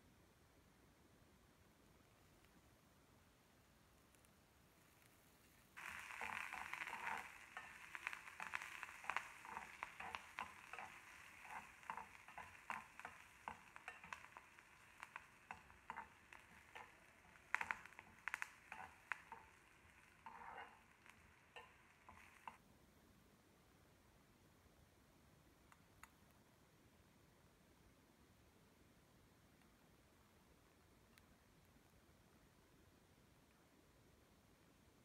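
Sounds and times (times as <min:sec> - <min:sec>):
oil sizzling: 0:04.8 - 0:22.6
metal spoon scraping a pan: 0:05.8 - 0:22.6.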